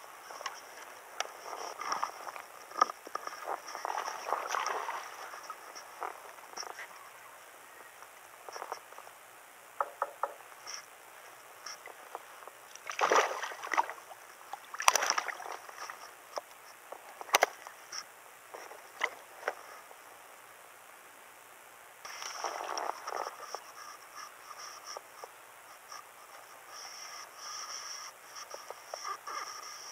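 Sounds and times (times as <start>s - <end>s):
small clicks and knocks: 9.8s - 10.8s
fish thrashing and splashing: 12.8s - 13.9s, 14.7s - 15.6s.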